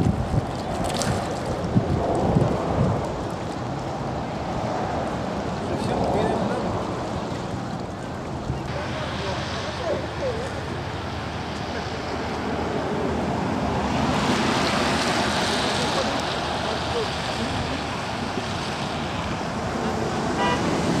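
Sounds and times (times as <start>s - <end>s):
wind on microphone: 0.0s - 8.8s
tyres hissing on wet road: 1.6s - 21.0s.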